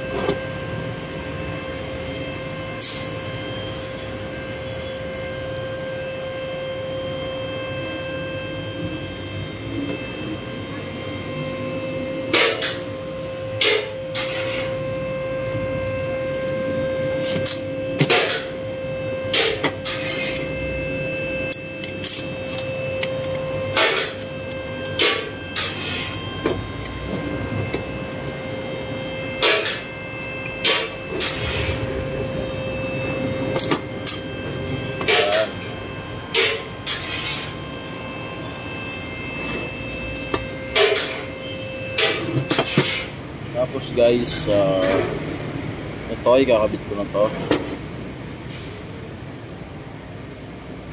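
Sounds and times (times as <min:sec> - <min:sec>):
steady background hum: 0:00.0 - 0:50.9
metal parts clinking on workbench: 0:04.9 - 0:05.5, 0:17.2 - 0:18.5, 0:21.5 - 0:26.0, 0:33.5 - 0:34.3.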